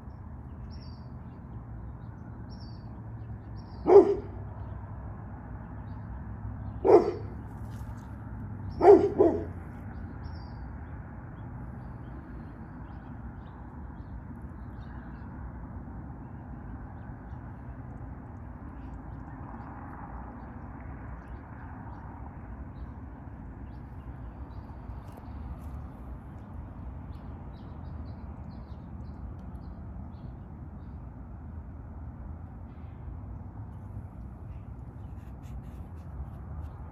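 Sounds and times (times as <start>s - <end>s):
dog barking: 3.8s - 4.4s, 6.8s - 7.3s, 8.7s - 9.6s.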